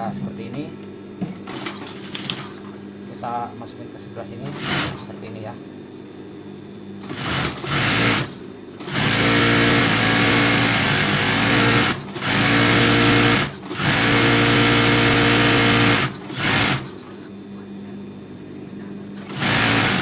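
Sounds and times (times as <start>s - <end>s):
sewing machine running: 4.4s - 5.1s, 7.0s - 17.0s, 19.2s - 20.0s.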